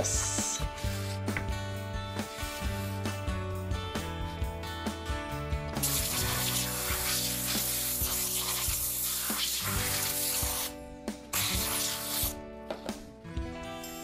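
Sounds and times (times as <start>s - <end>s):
compressed air blow gun hissing: 5.8s - 12.4s.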